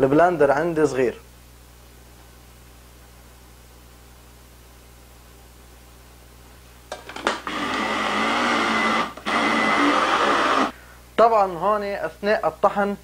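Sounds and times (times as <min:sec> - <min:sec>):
mini chopper grinding: 0:07.4 - 0:10.7.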